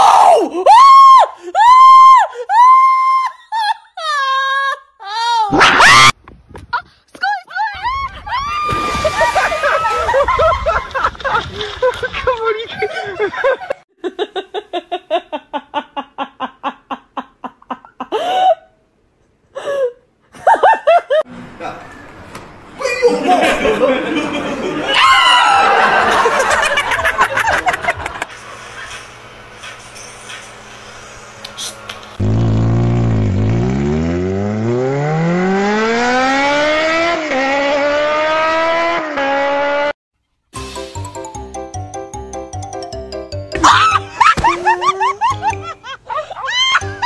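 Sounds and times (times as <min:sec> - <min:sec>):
person laughing: 0:02.3 - 0:05.6, 0:08.9 - 0:18.6, 0:22.8 - 0:24.9, 0:25.7 - 0:28.3, 0:43.6 - 0:47.0
car engine revving: 0:32.2 - 0:39.9.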